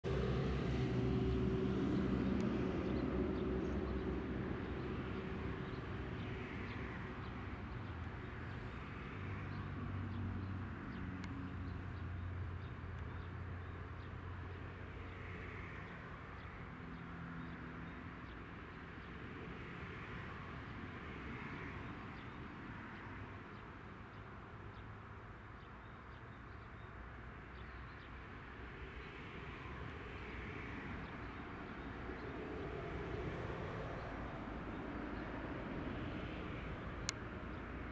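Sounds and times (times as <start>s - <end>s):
birds chirping: 1.7s - 20.4s.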